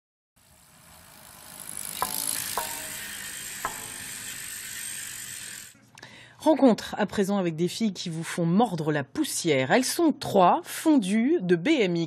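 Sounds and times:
sharp clicks with ringing tone: 0:02.0 - 0:04.5.

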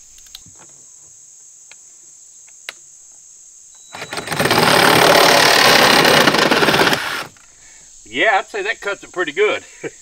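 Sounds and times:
crickets chirring: 0:00.0 - 0:10.0
reciprocating saw cutting pipe: 0:03.9 - 0:07.4.

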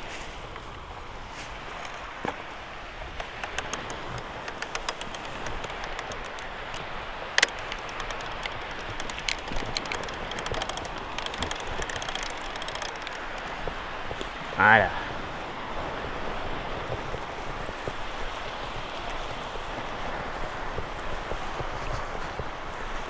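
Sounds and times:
bicycle tyres on sand: 0:00.0 - 0:23.0
wind noise: 0:00.0 - 0:23.0
bike clicking and rattling: 0:03.1 - 0:14.3.

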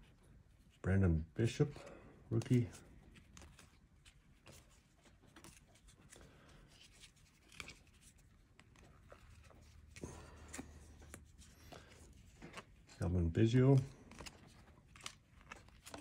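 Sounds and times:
trading cards rustling: 0:01.4 - 0:16.0.

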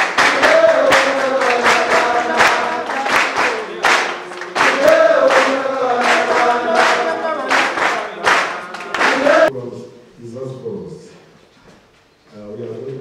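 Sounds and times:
group of voices chanting: 0:00.0 - 0:09.5
hand claps: 0:00.0 - 0:09.5.

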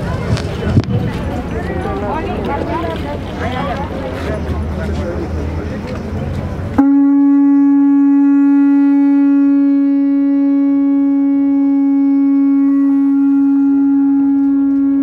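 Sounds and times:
horn long steady note: 0:06.8 - 0:15.0.

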